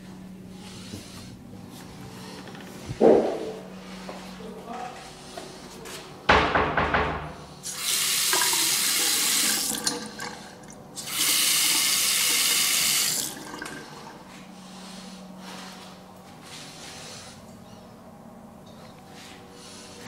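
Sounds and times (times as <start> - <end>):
faucet running water into sink: 7.7 - 14.0.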